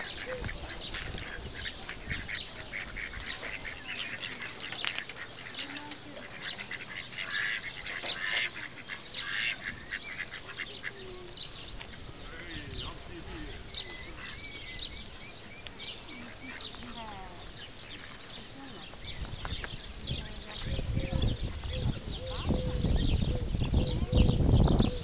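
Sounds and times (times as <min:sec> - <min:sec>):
ducks quacking: 0:00.0 - 0:11.4, 0:12.1 - 0:14.9, 0:16.0 - 0:17.4.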